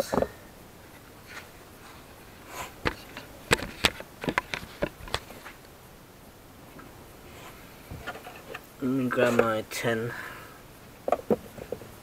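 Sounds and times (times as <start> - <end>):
handling clicks and knocks: 2.8 - 5.6.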